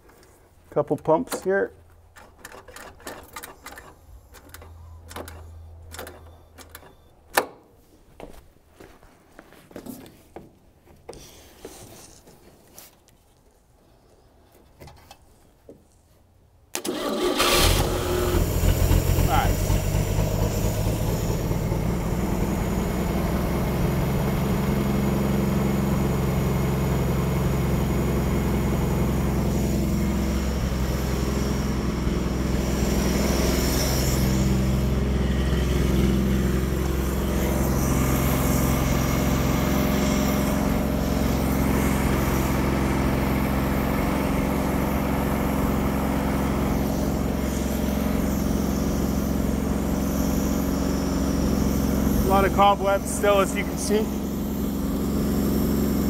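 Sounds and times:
car engine idling: 17.3 - 56.0.

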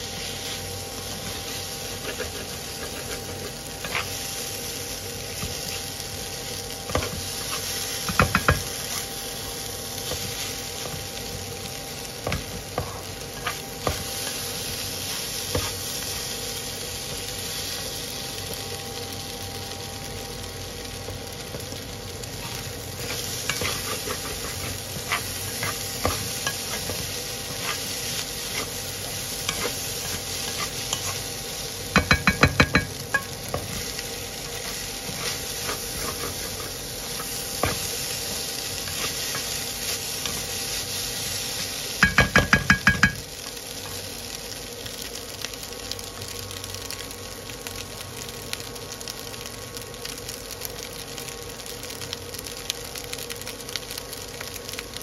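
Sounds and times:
rice sizzling in a pan: 0.0 - 55.0
wooden spatula scraping a pan: 0.1 - 4.2, 22.4 - 31.2, 34.6 - 40.8
quick ringing taps on a pan: 42.0 - 43.2.

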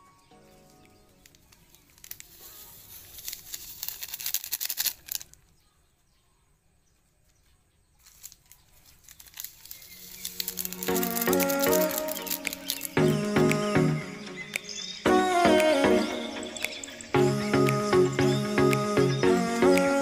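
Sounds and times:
music: 0.0 - 3.2, 10.0 - 20.0
plastic sachets crinkling and tearing: 0.7 - 5.4, 8.0 - 13.2.

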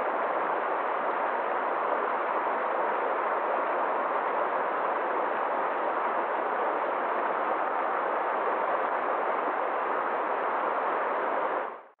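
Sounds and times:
stream rushing over rocks: 0.0 - 11.6.

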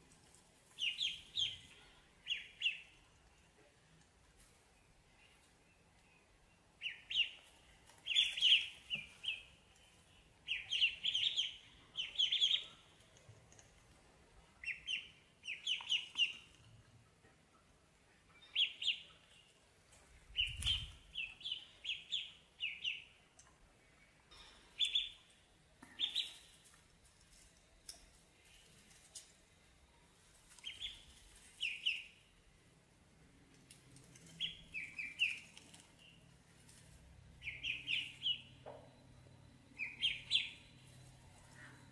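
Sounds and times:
ducklings peeping: 0.7 - 3.5, 6.2 - 13.3, 14.6 - 17.5, 18.4 - 19.6, 20.3 - 23.2, 24.0 - 26.6, 30.2 - 32.4, 33.6 - 41.9.

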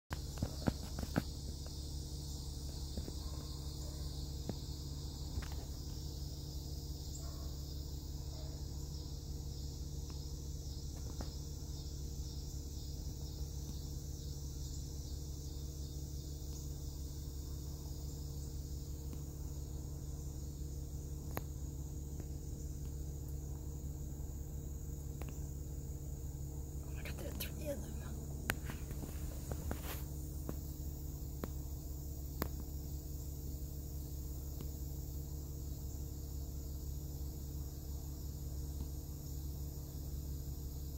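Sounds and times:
insects chirring: 0.1 - 40.9
low steady hum: 0.1 - 40.9.

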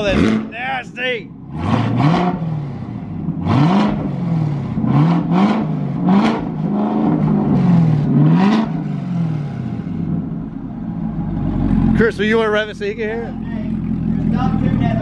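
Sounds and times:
people talking: 0.0 - 1.3, 12.0 - 15.0
car engine revving: 0.0 - 15.0.

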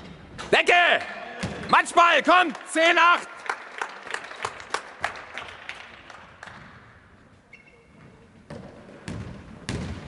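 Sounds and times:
people clapping: 2.2 - 6.7
ball bouncing on wooden floor: 8.5 - 10.0.

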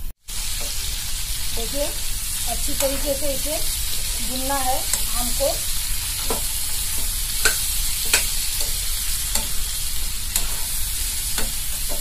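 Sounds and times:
food sizzling in pan: 0.0 - 12.0
spatula knocking pan: 6.2 - 9.7, 10.3 - 12.0.

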